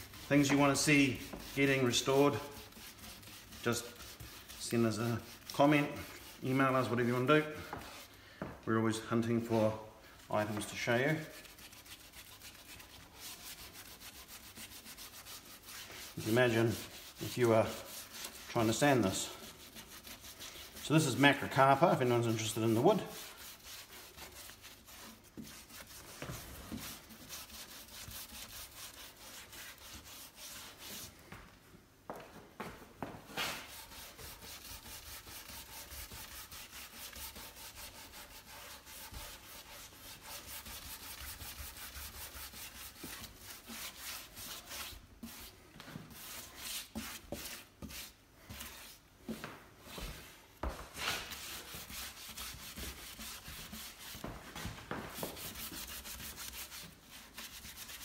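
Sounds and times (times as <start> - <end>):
hand scrubber scrubbing wet wood: 0.0 - 8.2, 10.3 - 31.2, 33.3 - 49.0, 49.9 - 58.0.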